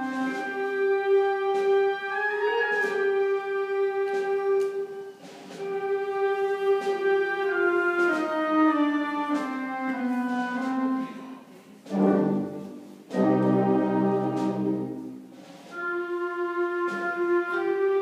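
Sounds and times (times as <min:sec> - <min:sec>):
concert band playing a march: 0:00.0 - 0:18.0
loud sustained band chords: 0:11.8 - 0:18.0.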